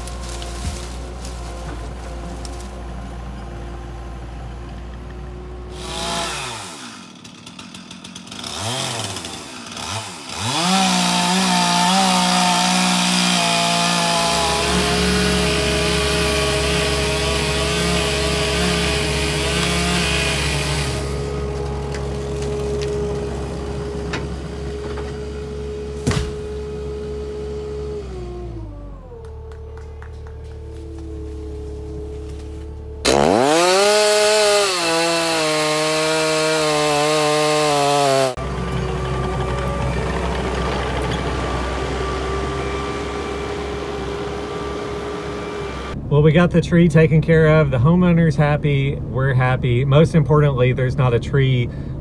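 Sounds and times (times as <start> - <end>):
tree trunk hitting the ground: 0.0 - 2.7, 21.4 - 23.6, 26.0 - 26.7
engine running: 0.0 - 52.0
chainsaw revving: 5.7 - 29.2, 33.0 - 46.0.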